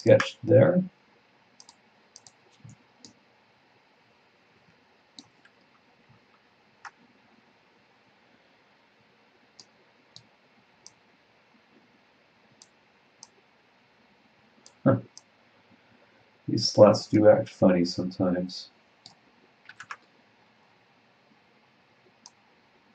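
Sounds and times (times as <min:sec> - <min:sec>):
computer mouse clicks: 0:01.6 - 0:03.2, 0:05.2 - 0:07.0, 0:09.6 - 0:11.0, 0:12.5 - 0:13.4, 0:19.0 - 0:20.1, 0:22.1 - 0:22.4.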